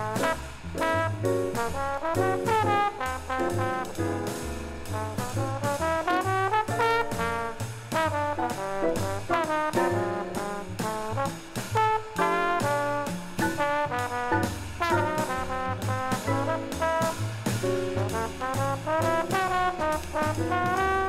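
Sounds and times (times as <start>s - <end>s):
bass line: 0.0s - 21.0s
drums with cymbal strokes: 0.0s - 21.0s
trombone melody: 0.0s - 21.0s.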